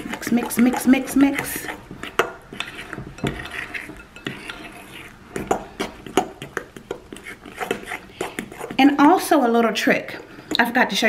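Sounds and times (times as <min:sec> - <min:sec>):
fork stirring batter: 0:00.0 - 0:11.0
fork clinking on glass bowl: 0:03.2 - 0:05.1.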